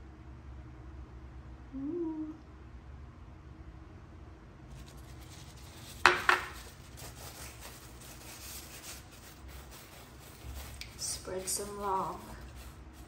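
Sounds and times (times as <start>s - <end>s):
paper towel rustling: 4.7s - 13.0s
bottle knocking on counter: 6.0s - 6.6s.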